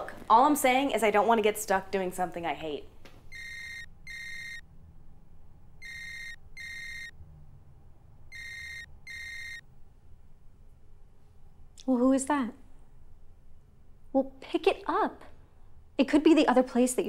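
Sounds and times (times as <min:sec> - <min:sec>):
smartphone ringtone ringing: 0:03.3 - 0:04.6, 0:05.8 - 0:07.1, 0:08.3 - 0:09.6.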